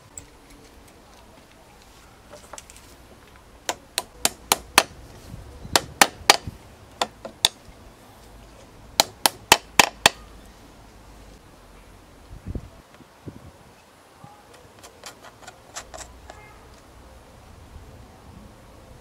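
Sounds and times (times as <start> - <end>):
small hammer tapping: 3.7 - 4.9.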